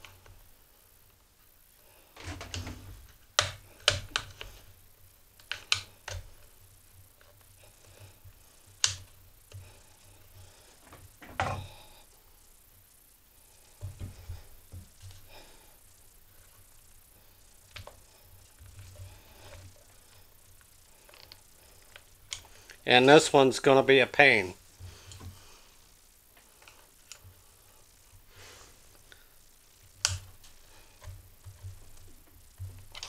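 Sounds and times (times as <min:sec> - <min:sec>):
screwdrivers clicking on plastic: 0:05.4 - 0:06.4.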